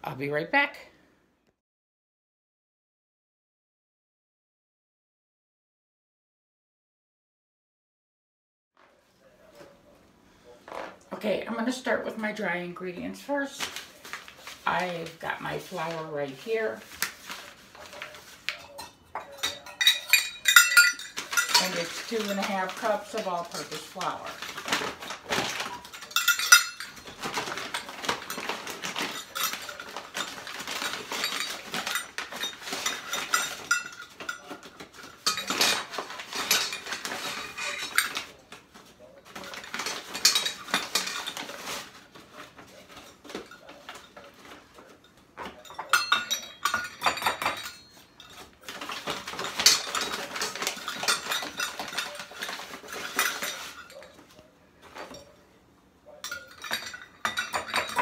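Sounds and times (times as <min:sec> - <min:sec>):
metal measuring cups clinking: 0:17.0 - 0:38.4, 0:39.3 - 0:41.9, 0:42.9 - 0:55.4, 0:56.2 - 0:58.0.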